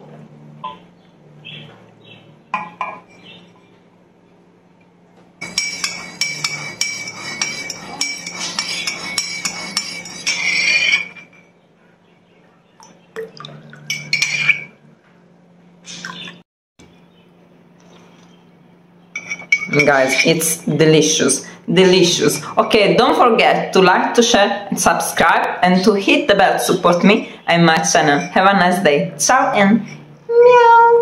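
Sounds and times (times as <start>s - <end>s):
teaspoon clinking in mug: 5.4s - 11.3s.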